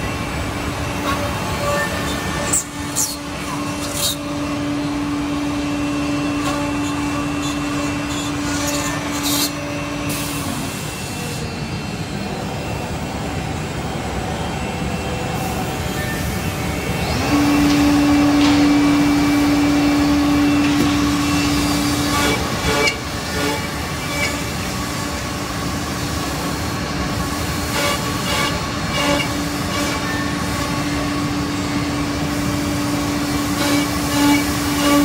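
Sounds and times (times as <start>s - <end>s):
machine whine: 0.0s - 35.0s.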